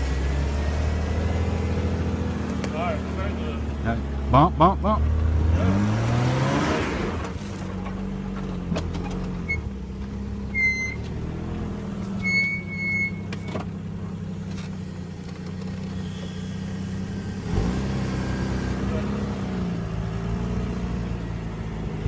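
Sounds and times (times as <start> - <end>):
engine running at low revs: 0.0 - 22.0
short high squeaks: 10.5 - 11.1, 12.2 - 13.7, 15.8 - 16.8.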